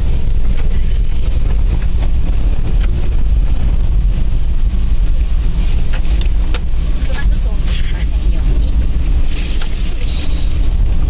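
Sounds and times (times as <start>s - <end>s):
engine and road rumble: 0.0s - 11.0s.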